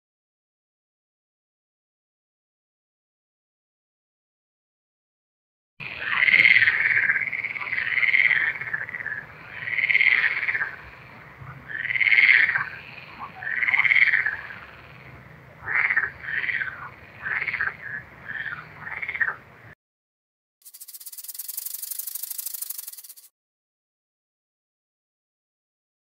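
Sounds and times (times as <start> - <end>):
frog croaking: 5.8 - 19.7.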